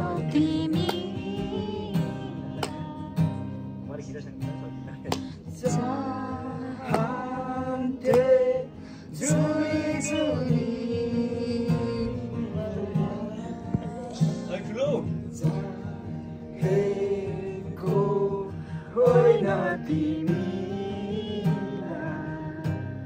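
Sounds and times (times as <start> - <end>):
person singing long notes: 0.0 - 3.4, 9.2 - 14.5
plucked guitar: 0.0 - 23.0.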